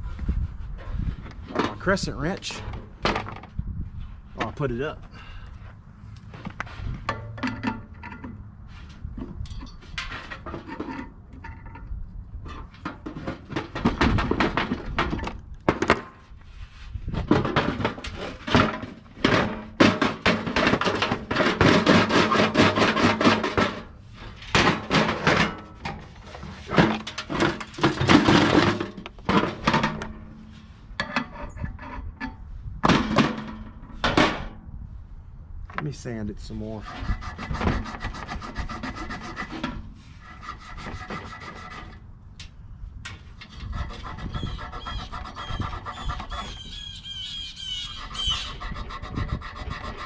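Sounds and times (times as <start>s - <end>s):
knocks against sheet-metal housing: 17.2s - 23.9s, 32.8s - 34.6s
sandpaper scraping metal shaft: 36.8s - 42.0s, 43.4s - 50.0s.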